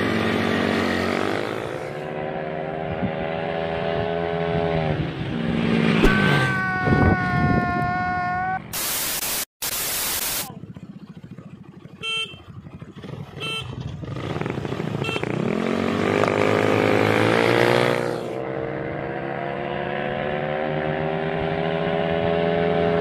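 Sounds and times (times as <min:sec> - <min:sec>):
scooter engine at high revs: 0:00.0 - 0:08.1, 0:10.4 - 0:23.0
scooter engines accelerating: 0:00.0 - 0:08.6, 0:10.5 - 0:23.0.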